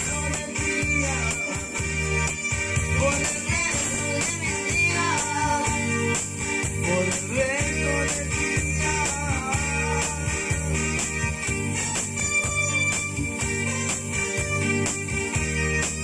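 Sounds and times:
man singing: 0:00.0 - 0:11.6
electronic keyboard accompaniment: 0:00.0 - 0:16.0.

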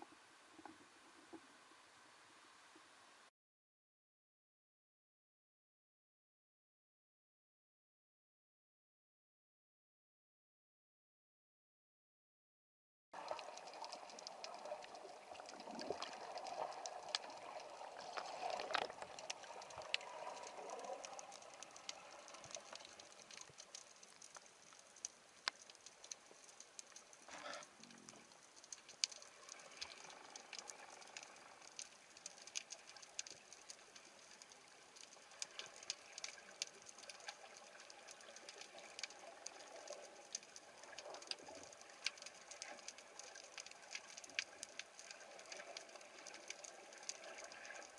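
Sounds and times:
underwater rushing water: 0:13.2 - 0:47.9
sharp crackling clicks: 0:13.3 - 0:47.9.

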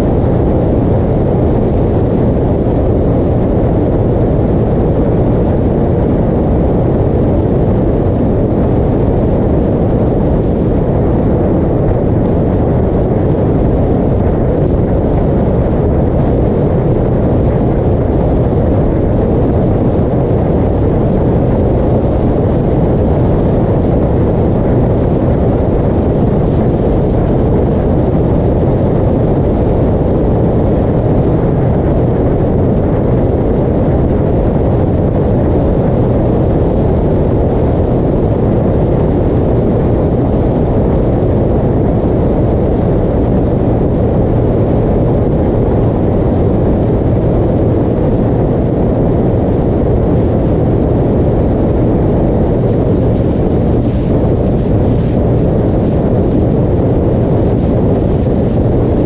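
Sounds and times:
wind and road noise: 0:00.0 - 0:59.0.

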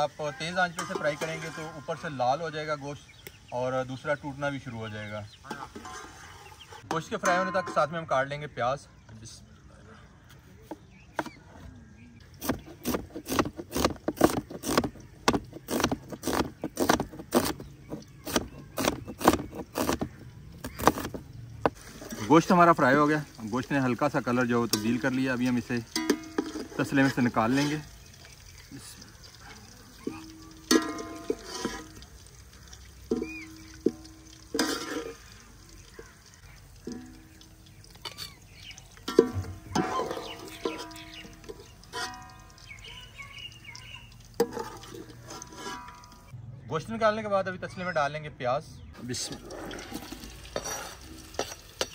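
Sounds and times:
utensil knocking and scraping metal pan: 0:00.7 - 0:02.1, 0:05.4 - 0:06.2, 0:12.4 - 0:22.9, 0:24.4 - 0:27.9, 0:30.0 - 0:32.2, 0:33.0 - 0:36.2, 0:36.8 - 0:37.4, 0:38.0 - 0:42.5, 0:44.4 - 0:46.3, 0:49.1 - 0:51.9
knife slicing onions on cutting board: 0:12.4 - 0:21.2
pan ringing: 0:30.2 - 0:31.8, 0:39.1 - 0:42.7.

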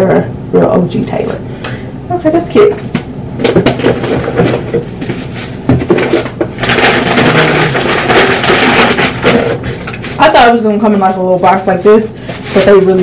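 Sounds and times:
paper packaging rustling: 0:03.4 - 0:13.0.

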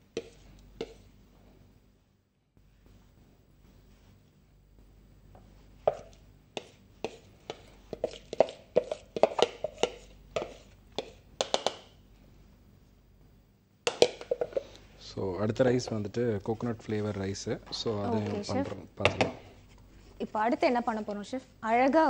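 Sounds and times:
spoon tapping plastic bowl: 0:05.9 - 0:11.9, 0:13.9 - 0:14.6.

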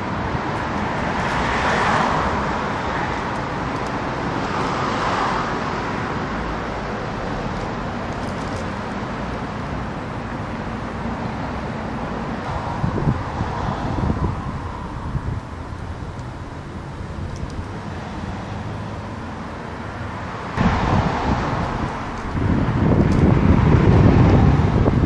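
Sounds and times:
city road traffic: 0:00.0 - 0:25.0.

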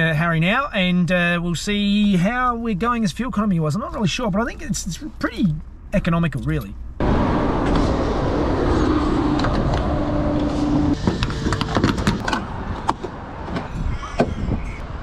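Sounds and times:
rush of background noise: 0:07.0 - 0:15.0.

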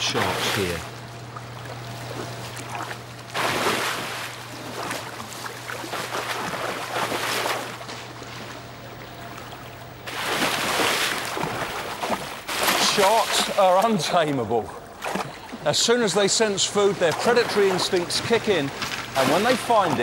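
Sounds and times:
steady low hum: 0:00.0 - 0:20.0
water splashing and churning: 0:00.0 - 0:20.0.

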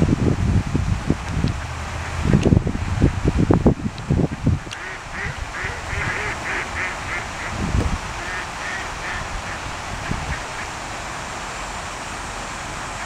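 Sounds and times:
wind buffeting microphone: 0:00.0 - 0:11.4
ducks quacking: 0:04.7 - 0:10.8.

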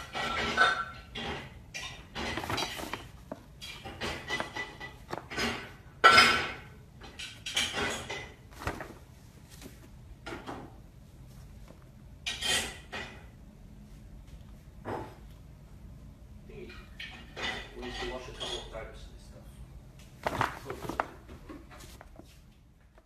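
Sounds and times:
paper bag crinkling: 0:02.3 - 0:03.6, 0:20.2 - 0:21.2.

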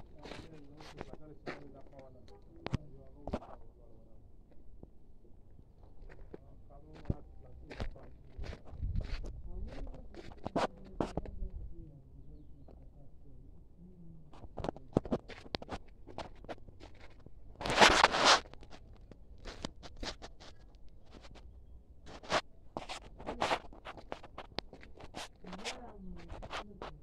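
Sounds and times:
phone handling scratches and clicks: 0:17.6 - 0:21.4.

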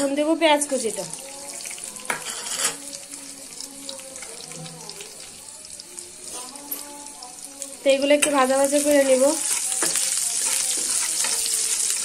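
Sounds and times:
onion sizzling in hot oil: 0:00.0 - 0:12.0.

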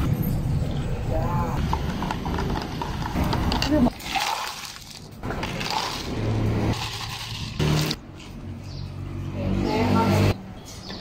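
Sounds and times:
ice cubes rattling into cups: 0:02.2 - 0:08.0.

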